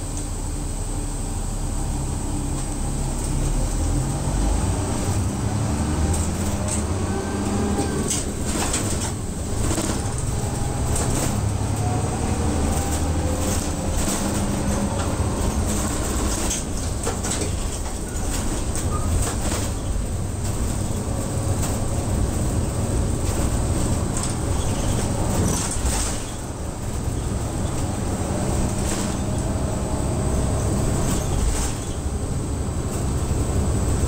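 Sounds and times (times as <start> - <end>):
bus engine running: 0.0 - 34.0.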